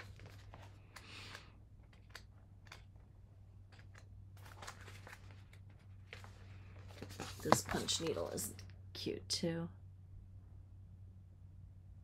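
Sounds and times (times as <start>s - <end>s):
magazine pages rustling: 0.0s - 3.0s, 3.7s - 8.6s
steady low hum: 0.0s - 12.0s.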